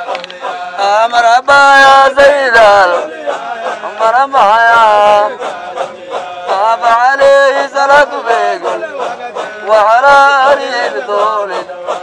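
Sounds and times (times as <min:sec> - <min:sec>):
hand claps: 0:00.0 - 0:00.6
men chanting in unison: 0:00.0 - 0:12.0.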